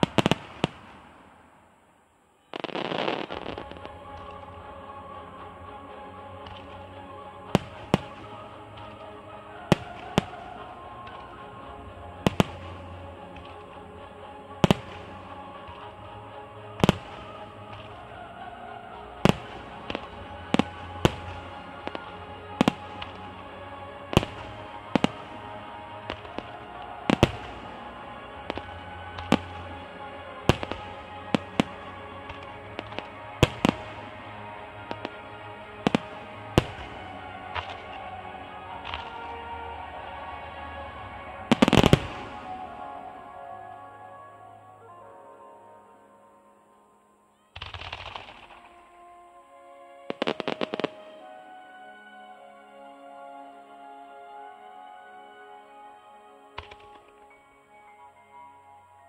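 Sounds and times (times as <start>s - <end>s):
fireworks bursting bangs: 0.0s - 1.3s, 2.5s - 4.4s, 24.1s - 38.2s, 38.8s - 39.4s, 41.4s - 43.0s, 47.6s - 48.8s, 50.1s - 51.1s, 56.6s - 57.2s
background music: 0.0s - 59.0s
firework shells bursting: 47.6s - 48.8s.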